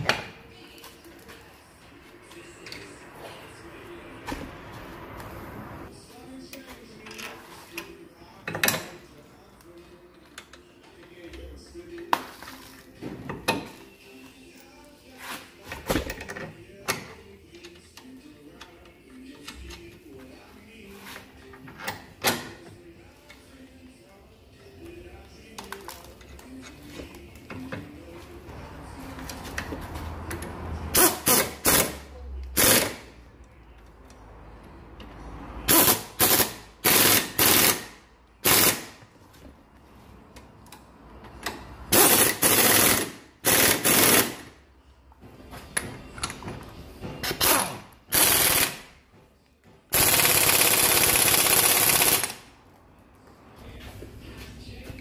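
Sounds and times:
pneumatic impact wrench hammering: 0:30.9 - 0:32.0, 0:32.6 - 0:33.0, 0:35.7 - 0:39.0, 0:41.9 - 0:44.5, 0:47.2 - 0:48.9, 0:49.9 - 0:52.4.

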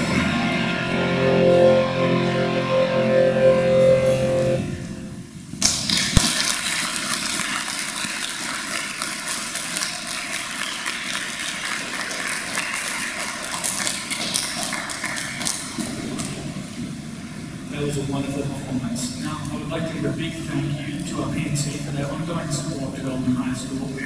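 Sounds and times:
audience applauding: 0:05.6 - 0:16.8.

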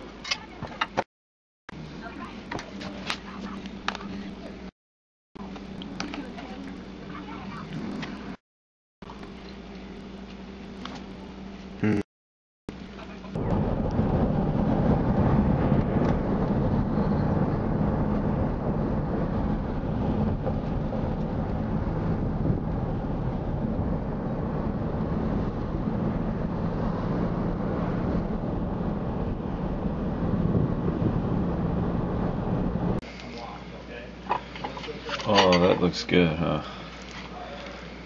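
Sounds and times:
car road and engine rumble: 0:05.4 - 0:08.4, 0:12.7 - 0:33.1.

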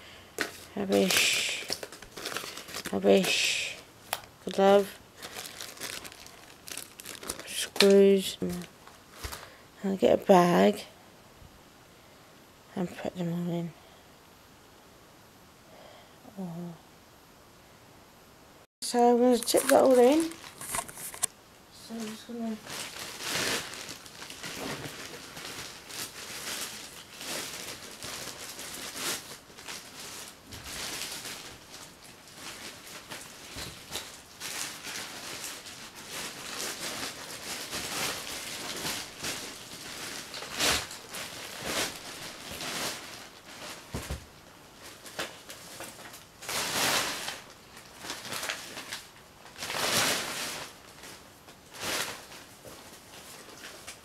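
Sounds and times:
plastic bag rustling: 0:00.4 - 0:09.6, 0:18.9 - 0:54.0
hard items knocking into bag: 0:43.9 - 0:44.3.

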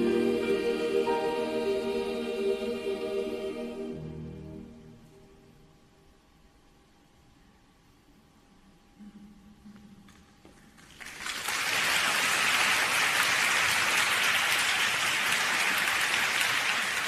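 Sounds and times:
audience applause: 0:10.8 - 0:17.0.

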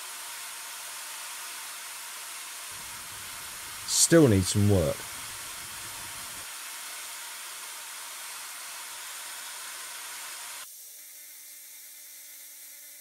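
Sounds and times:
faint steady hum tones: 0:02.8 - 0:06.4
steady hiss: 0:02.8 - 0:06.4.

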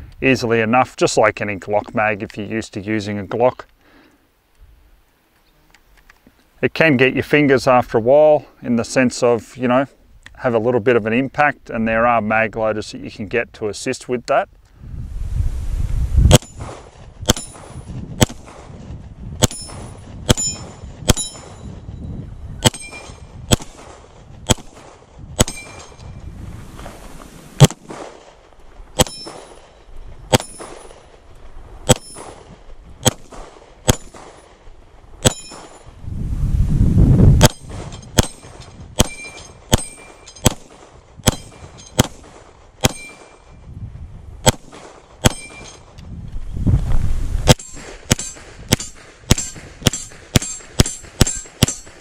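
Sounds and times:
pistol shots: 0:16.3 - 0:18.7, 0:19.4 - 0:21.6, 0:22.6 - 0:26.0, 0:27.6 - 0:28.4, 0:29.0 - 0:31.0, 0:31.8 - 0:34.6, 0:35.2 - 0:35.9, 0:37.4 - 0:43.4, 0:44.4 - 0:45.8, 0:47.5 - 0:52.0.

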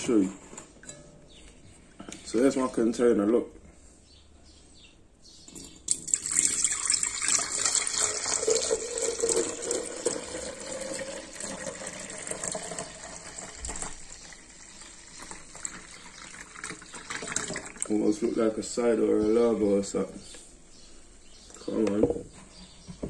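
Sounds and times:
juice pouring into glass jug: 0:05.5 - 0:18.0.

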